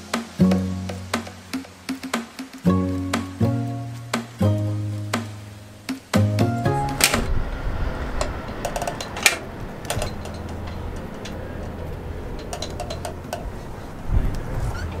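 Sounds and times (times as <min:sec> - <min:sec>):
metal gate rattling: 0:06.8 - 0:14.1
low rumble: 0:06.8 - 0:15.0.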